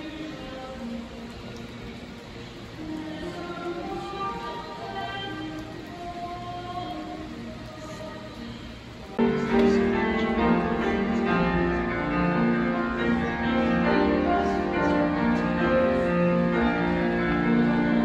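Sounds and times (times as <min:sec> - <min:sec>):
piano: 0:00.0 - 0:18.0
orchestra playing sustained chords: 0:09.1 - 0:18.0.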